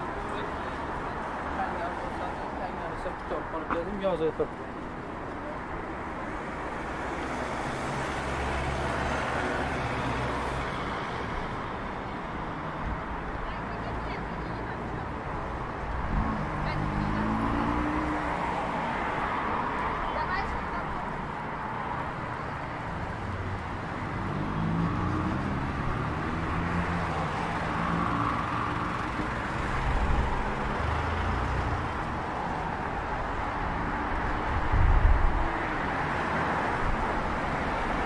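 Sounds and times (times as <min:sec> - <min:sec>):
road traffic: 0:00.0 - 0:38.0
car passing: 0:06.2 - 0:11.9, 0:13.7 - 0:38.0.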